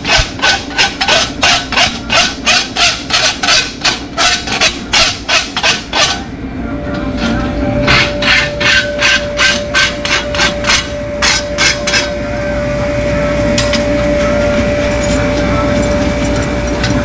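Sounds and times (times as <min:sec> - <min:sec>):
tool strokes on hoof: 0:00.0 - 0:06.2, 0:07.2 - 0:12.1
steady hum: 0:00.0 - 0:17.0.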